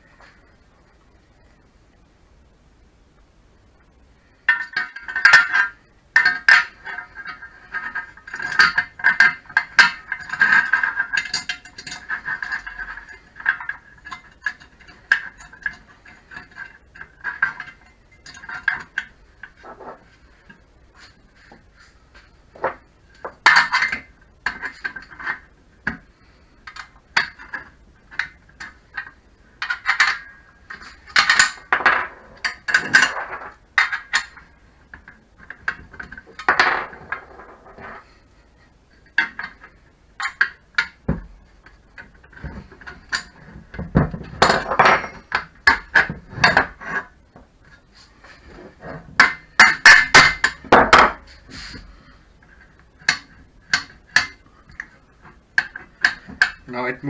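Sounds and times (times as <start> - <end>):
metal parts clinking and scraping: 26.7 - 38.2.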